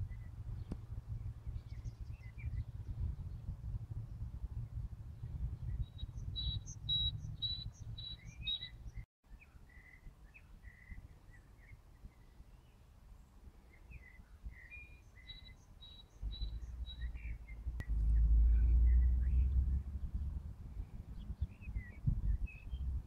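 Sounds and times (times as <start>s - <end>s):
small birds singing: 0.0s - 23.0s
low rumble: 16.2s - 23.0s.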